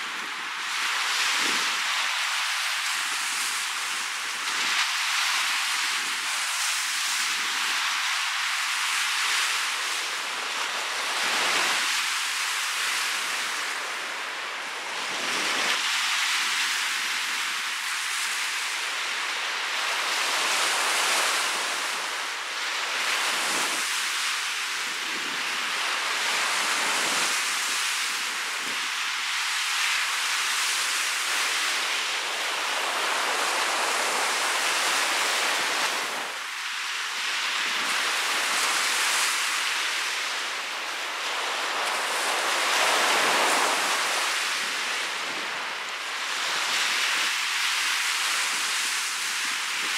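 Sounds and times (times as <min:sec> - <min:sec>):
strong wind: 0:00.0 - 0:08.1, 0:24.7 - 0:49.9
waves breaking on a beach: 0:00.0 - 0:49.9.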